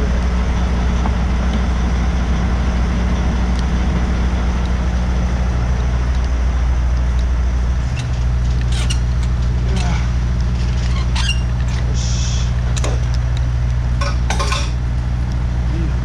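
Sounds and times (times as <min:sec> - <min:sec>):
truck diesel engine running: 0:00.0 - 0:16.0
steady hiss: 0:11.6 - 0:12.8.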